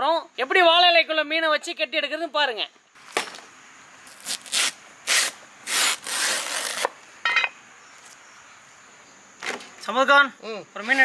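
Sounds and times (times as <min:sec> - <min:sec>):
banana leaves rustling: 0:02.9 - 0:07.0.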